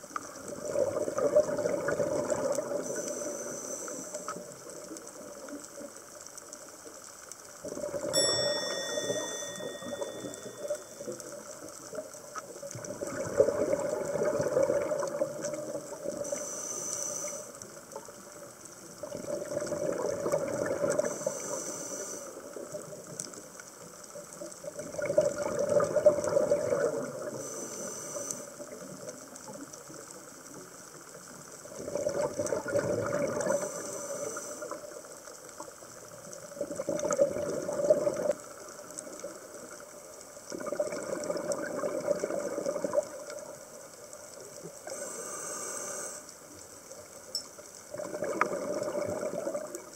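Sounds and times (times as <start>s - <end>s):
exhaled bubbles rushing and gurgling: 0.0s - 3.5s, 7.4s - 8.2s, 11.9s - 16.6s, 17.6s - 21.4s, 22.4s - 27.5s, 28.6s - 33.8s, 34.4s - 45.1s, 47.8s - 49.9s
regulator inhale hiss: 2.7s - 4.7s, 16.2s - 18.0s, 20.9s - 22.6s, 27.2s - 28.9s, 33.4s - 35.1s, 44.8s - 46.6s.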